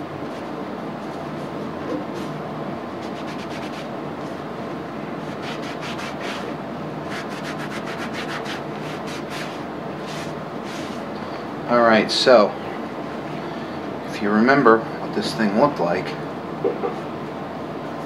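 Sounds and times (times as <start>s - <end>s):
steady background hum: 0.0s - 18.0s
cloth rag wiping metal: 7.1s - 11.0s.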